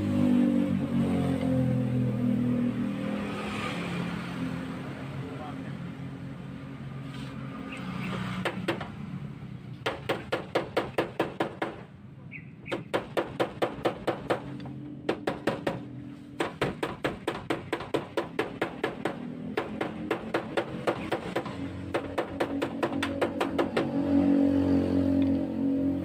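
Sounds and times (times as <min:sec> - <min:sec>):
hammer tapping on sheet metal: 0:08.4 - 0:08.9, 0:09.8 - 0:11.8, 0:12.7 - 0:24.0.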